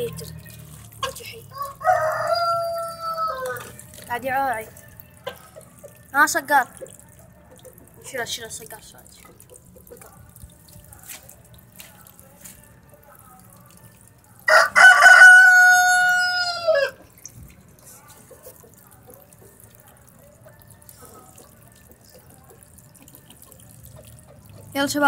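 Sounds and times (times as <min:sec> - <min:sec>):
rooster crowing: 0:01.5 - 0:03.7, 0:14.5 - 0:17.0.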